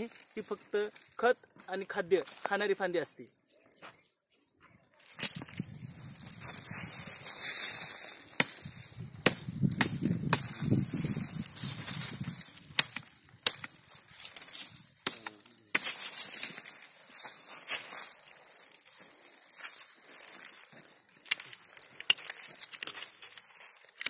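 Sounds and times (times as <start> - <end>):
dry leaves crunching and rustling: 0.0 - 3.8, 5.0 - 24.0
twigs snapping: 5.0 - 24.0.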